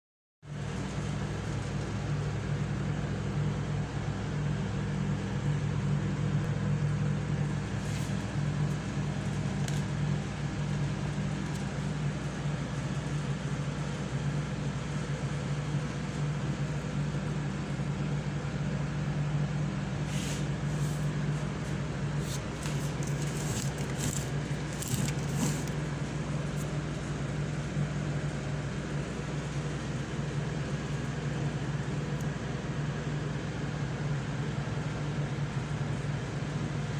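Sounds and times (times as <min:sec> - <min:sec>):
low droning hum: 0:00.5 - 0:36.9
rustles: 0:07.5 - 0:13.2, 0:20.1 - 0:27.1.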